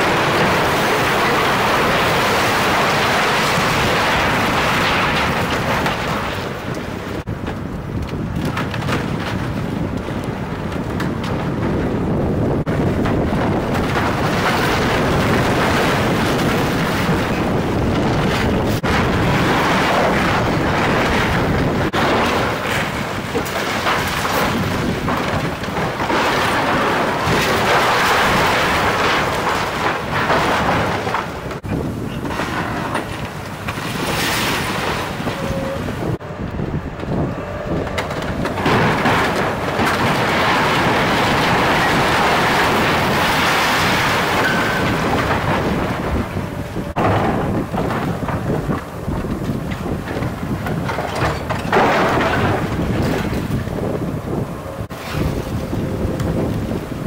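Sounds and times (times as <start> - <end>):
splintering timber and crashing debris: 0.0 - 36.2, 37.0 - 57.0
excavator engine running: 34.9 - 43.4, 44.2 - 57.0.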